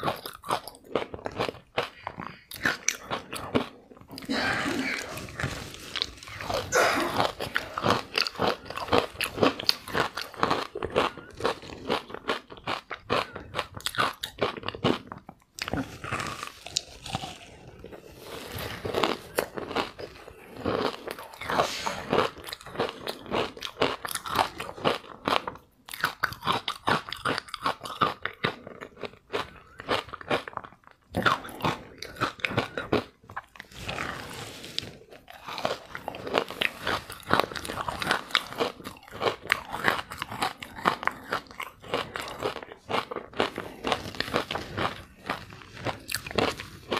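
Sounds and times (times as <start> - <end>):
ice being chewed: 0.0 - 46.9.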